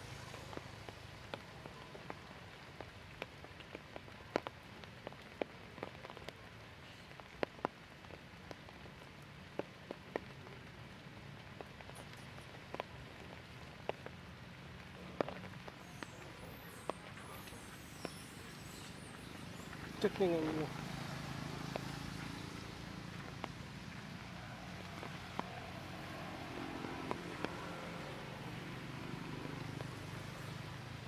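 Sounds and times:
faint steady hiss: 0.0 - 31.0
water drops dripping: 15.2 - 30.8.

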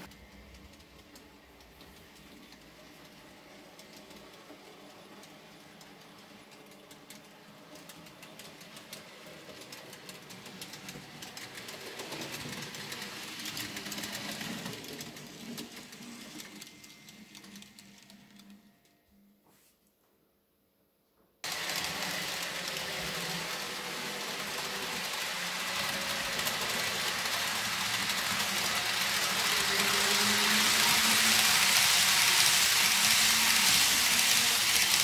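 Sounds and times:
model train wheels clicking: 0.0 - 18.7, 21.4 - 35.0
small electric motor hum: 21.4 - 35.0.

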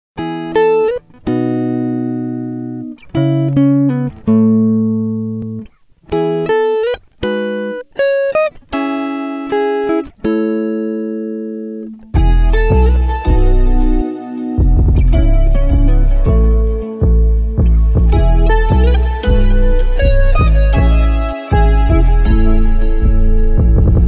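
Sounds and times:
plucked string chords: 0.2 - 24.0
bass line and beat: 12.2 - 24.0.

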